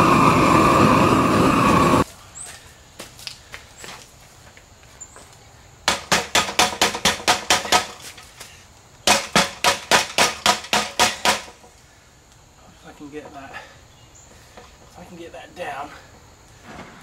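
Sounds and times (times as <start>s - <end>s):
mallet hammering on wire: 5.9s - 8.1s, 9.0s - 11.6s.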